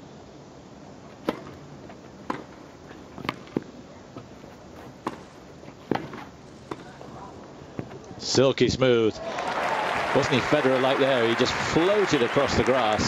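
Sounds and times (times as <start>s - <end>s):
low background noise: 0.0s - 13.0s
tennis ball hit by rackets: 1.2s - 1.6s, 2.2s - 2.6s, 3.2s - 3.7s, 5.0s - 6.9s.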